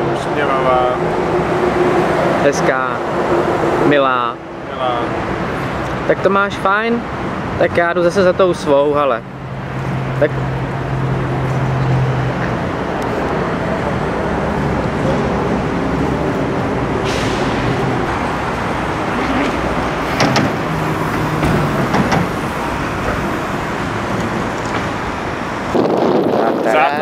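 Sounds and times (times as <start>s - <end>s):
road traffic noise: 0.0s - 27.0s
sharp knocks: 20.1s - 23.3s.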